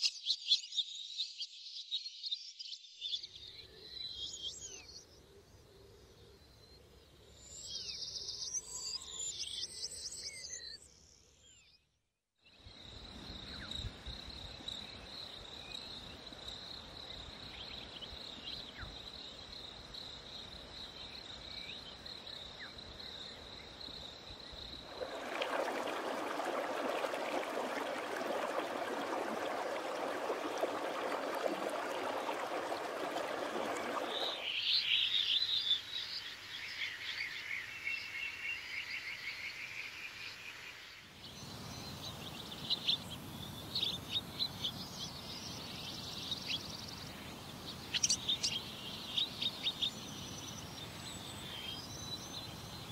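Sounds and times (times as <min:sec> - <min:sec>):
birds chirping: 0:24.8 - 0:35.8.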